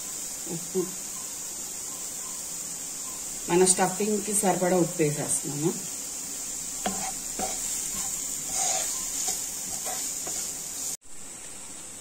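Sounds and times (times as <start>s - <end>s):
onions sizzling in oil: 0.0s - 12.0s
spatula scraping pan: 6.7s - 11.0s.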